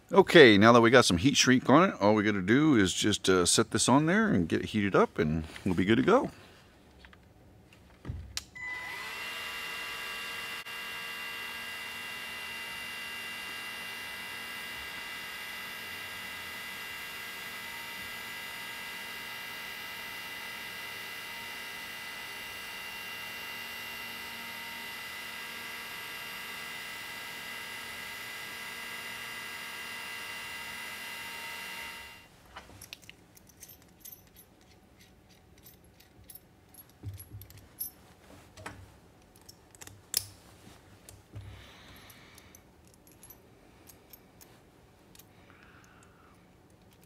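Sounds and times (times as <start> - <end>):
heat gun fan whine and hiss: 8.0 - 32.4, 40.1 - 46.8.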